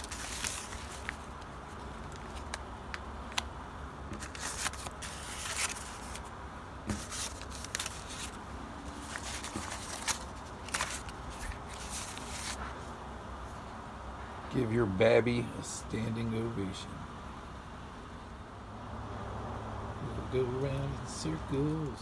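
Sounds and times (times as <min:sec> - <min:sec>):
paper sleeves rustling and crinkling: 0:00.0 - 0:03.5, 0:04.1 - 0:06.3, 0:06.9 - 0:12.9.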